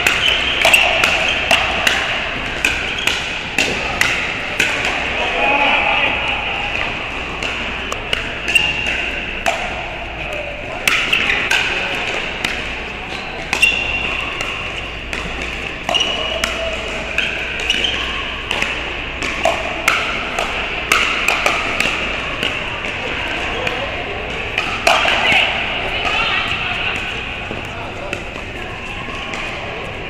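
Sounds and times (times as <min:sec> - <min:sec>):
paddles hitting plastic ball: 0:00.0 - 0:05.0.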